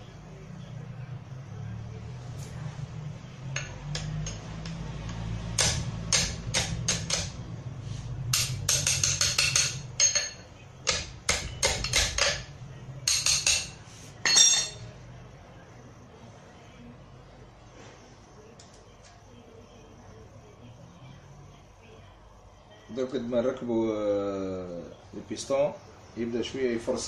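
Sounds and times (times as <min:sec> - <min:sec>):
metallic tool clinks and taps: 0:13.1 - 0:14.8.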